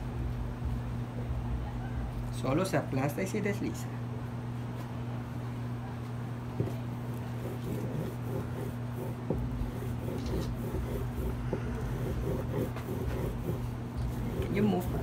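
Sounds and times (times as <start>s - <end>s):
steady low hum: 0.0s - 15.0s
stone roller scraping on stone: 7.3s - 15.0s.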